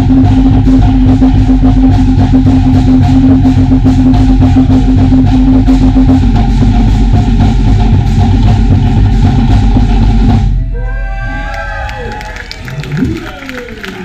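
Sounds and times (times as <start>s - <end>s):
steady held note: 0.0s - 9.2s
loud fast drumming: 0.0s - 10.6s.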